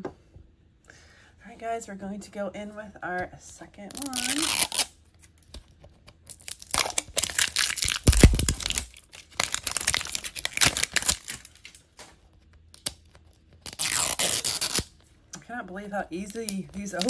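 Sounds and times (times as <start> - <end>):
plastic wrapping crinkling: 3.9 - 15.1, 16.2 - 17.0.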